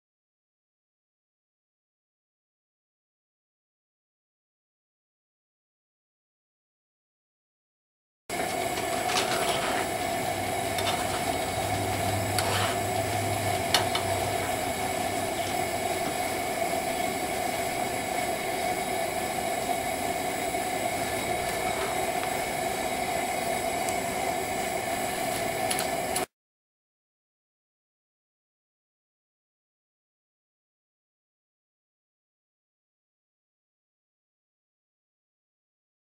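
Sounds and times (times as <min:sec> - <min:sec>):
camp stove burner hissing: 0:08.3 - 0:26.3.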